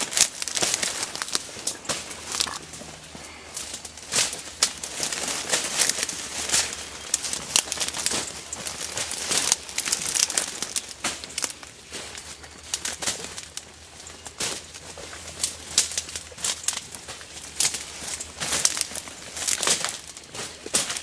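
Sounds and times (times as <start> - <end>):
twigs snapping: 0.0 - 13.6, 15.4 - 21.0
leaves and brush rustling: 0.0 - 21.0.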